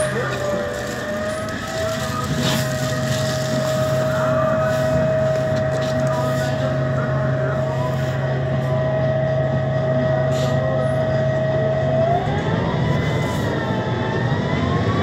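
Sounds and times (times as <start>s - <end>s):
bus engine drone: 0.0s - 15.0s
high transmission whine: 0.0s - 15.0s.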